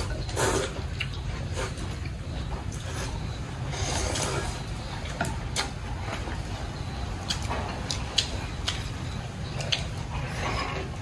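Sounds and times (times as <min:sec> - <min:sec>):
slurping broth: 0:00.0 - 0:02.0, 0:02.8 - 0:04.7.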